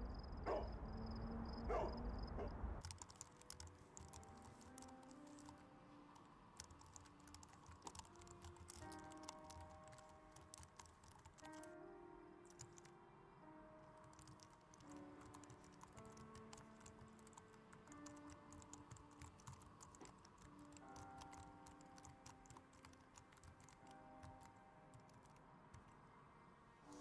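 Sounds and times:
soft background music: 0.0s - 27.0s
laptop keyboard typing: 2.8s - 11.7s, 12.5s - 12.9s, 13.9s - 26.0s.

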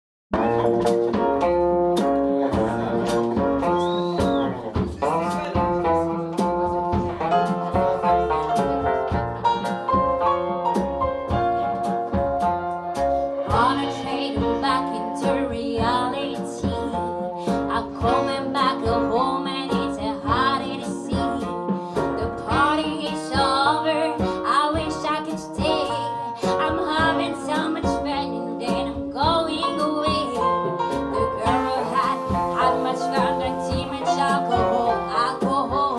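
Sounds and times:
live blues band playing: 0.3s - 35.9s
bending sliding lead guitar notes: 0.4s - 10.6s.

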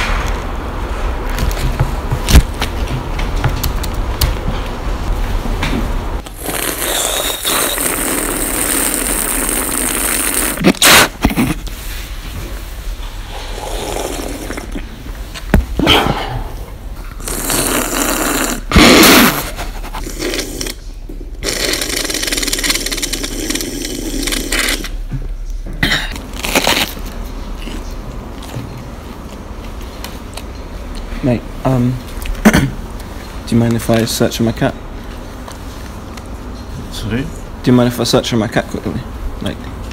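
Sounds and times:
person crunching and chewing: 26.1s - 28.7s.

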